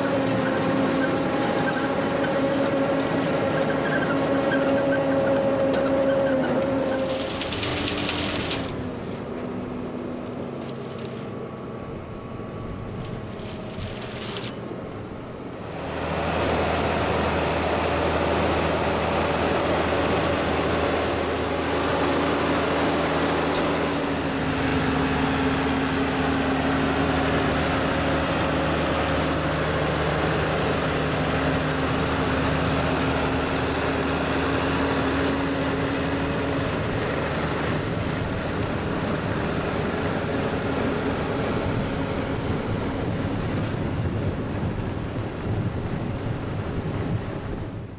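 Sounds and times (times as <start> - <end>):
harvester machinery working: 0.0 - 47.9
tractor engine under load: 0.0 - 47.9.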